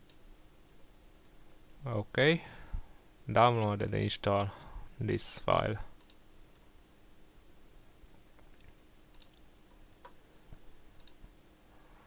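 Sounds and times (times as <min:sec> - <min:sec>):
computer mouse clicks: 0:06.0 - 0:06.2, 0:08.4 - 0:10.2, 0:11.0 - 0:11.2.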